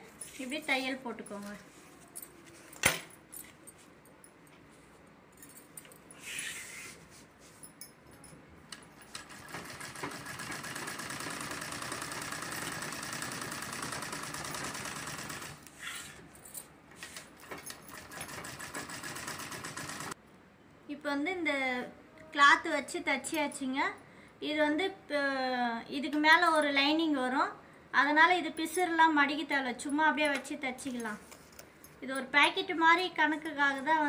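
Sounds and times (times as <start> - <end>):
sewing machine stitching: 9.1 - 15.7, 17.4 - 20.2.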